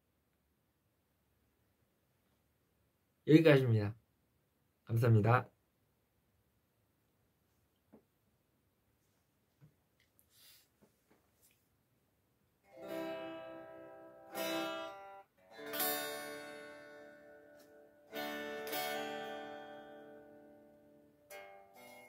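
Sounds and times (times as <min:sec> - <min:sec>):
guitar strumming slow chords: 0:12.7 - 0:22.0.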